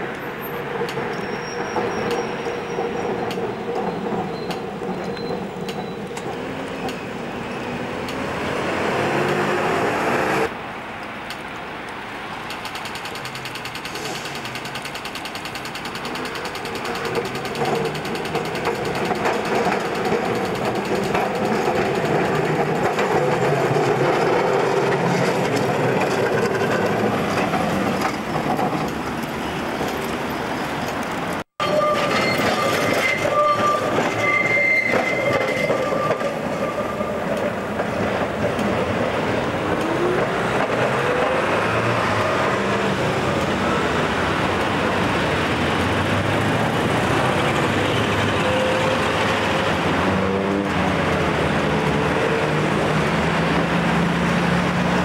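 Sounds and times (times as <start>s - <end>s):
road traffic: 0.0s - 55.0s
tram wheel and motor noise: 0.0s - 55.0s
high wheel squeal: 0.2s - 8.0s, 31.6s - 38.4s, 45.3s - 50.6s.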